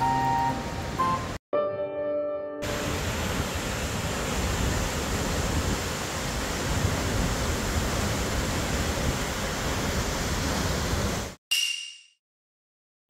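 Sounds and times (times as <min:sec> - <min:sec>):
waterfall rushing: 0:02.6 - 0:11.4.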